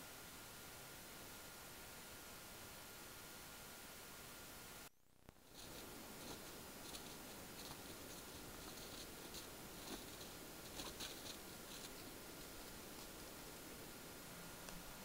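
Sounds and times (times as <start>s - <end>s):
faint electronic whine: 0.0s - 15.0s
microphone hiss: 0.0s - 15.0s
rabbits scuffling in snow: 5.4s - 15.0s.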